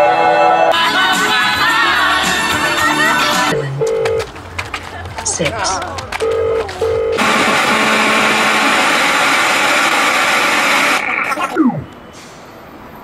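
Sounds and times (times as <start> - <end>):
short low phone beeps: 3.6 - 4.3, 6.2 - 7.3
loud line static: 6.2 - 12.0.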